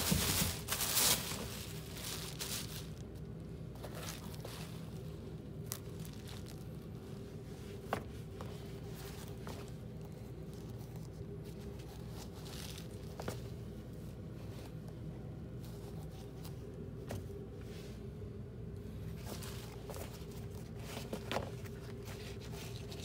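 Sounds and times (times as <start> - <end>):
mesh fabric rustling: 0.0 - 13.6
steady low hum: 0.0 - 23.0.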